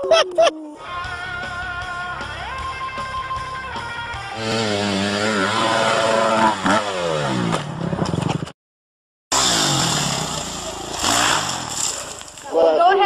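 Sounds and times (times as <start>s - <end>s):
dirt bike engine revving: 4.2s - 8.2s, 9.3s - 12.2s.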